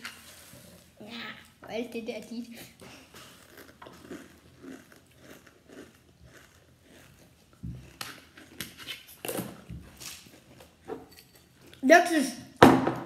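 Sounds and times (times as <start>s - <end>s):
child chewing crunchy food: 2.5s - 11.8s.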